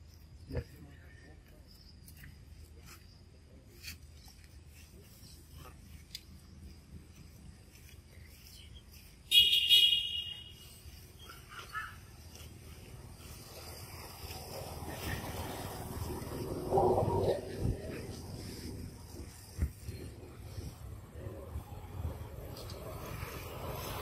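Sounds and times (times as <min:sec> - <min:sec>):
soft chirps: 0:00.0 - 0:09.4
shrill high-pitched call: 0:09.3 - 0:12.1.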